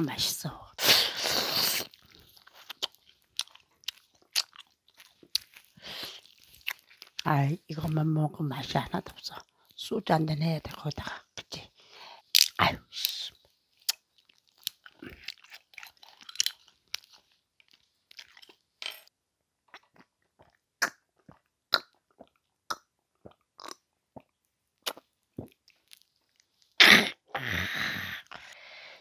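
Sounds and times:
wet mouth clicks and smacks: 19.8s - 25.6s.

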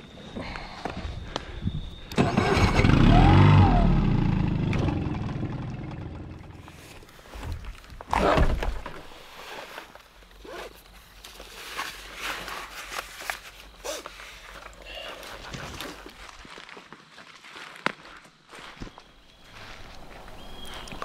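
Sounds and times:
outboard motor starting and running: 2.1s - 7.0s.

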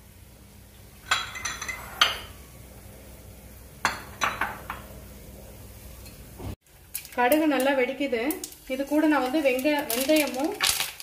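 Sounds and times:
mustard seeds popping in oil: 6.8s - 11.0s.

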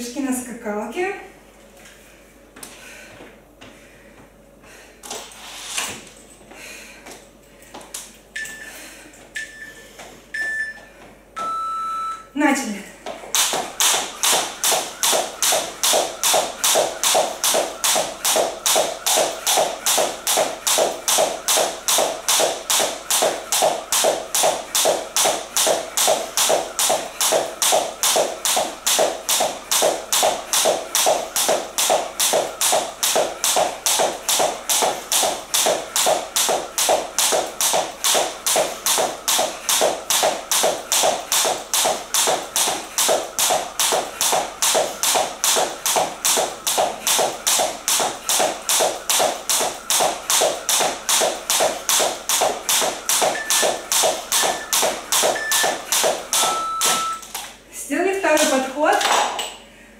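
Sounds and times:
jump rope slapping hard floor: 13.0s - 57.6s, 58.3s - 59.4s.

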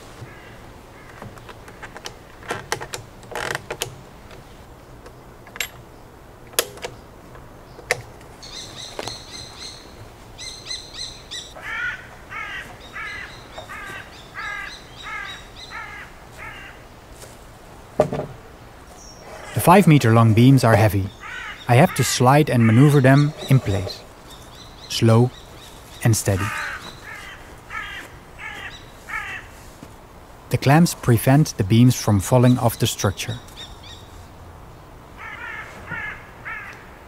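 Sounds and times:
crow cawing: 0.2s - 1.2s, 11.6s - 16.8s, 21.1s - 23.3s, 26.4s - 29.6s, 35.2s - 37.0s
bird chirping: 6.9s - 16.0s, 19.0s - 29.4s, 31.9s - 34.2s
tools and timber knocking: 18.0s - 18.4s.

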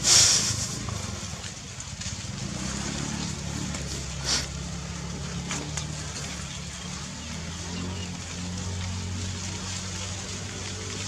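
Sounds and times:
short hiss: 0.0s - 0.8s, 4.2s - 4.5s
engine humming: 0.0s - 11.0s.

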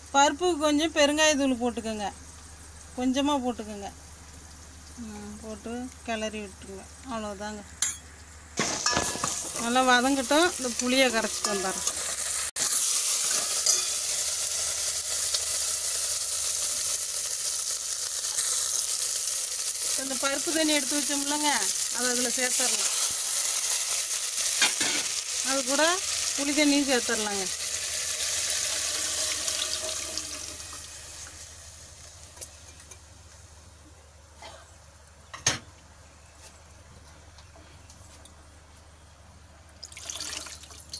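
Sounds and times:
spices sizzling in hot oil: 0.0s - 33.8s
liquid splashing into a pot: 27.6s - 31.5s, 39.8s - 40.9s.

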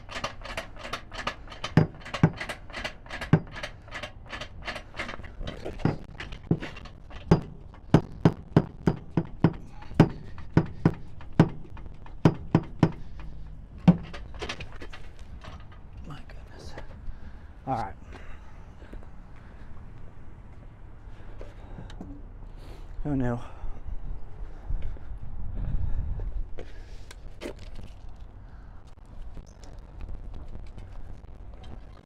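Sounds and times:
floor jack metallic clicks: 0.0s - 15.8s.

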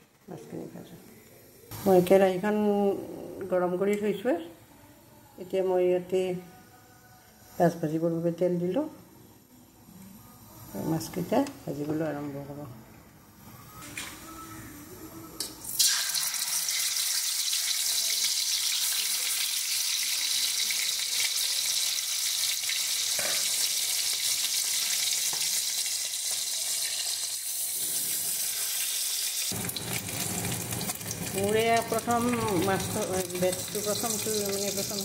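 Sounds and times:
fish frying in hot oil: 15.8s - 35.0s.

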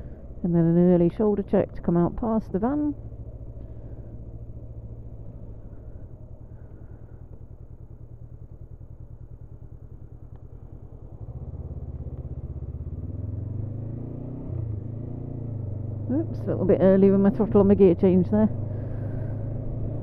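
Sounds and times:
motorcycle engine running: 0.0s - 20.0s.

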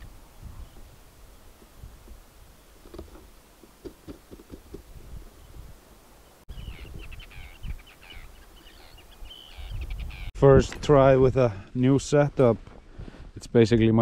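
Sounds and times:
wind rumbling on microphone: 0.0s - 5.9s, 6.5s - 14.0s
birds chirping: 2.5s - 10.3s.

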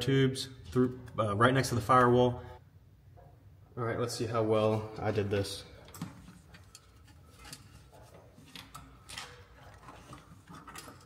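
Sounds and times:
wire scraping: 5.8s - 11.0s.

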